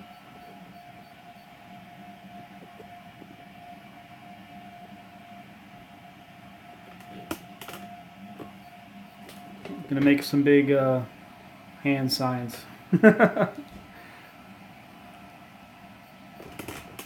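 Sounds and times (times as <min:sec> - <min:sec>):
three d printer humming: 0:00.0 - 0:17.0.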